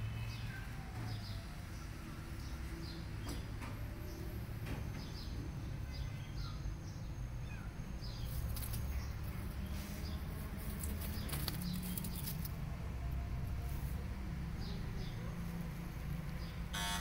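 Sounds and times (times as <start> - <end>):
small birds chirping: 0.0 - 16.7
crackly rustling: 8.2 - 14.2.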